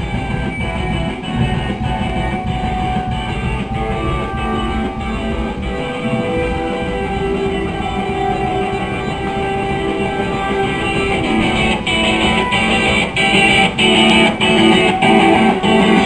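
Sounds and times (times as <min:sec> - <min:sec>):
drums: 0:00.0 - 0:16.0
electric guitar sustained notes: 0:00.0 - 0:16.0.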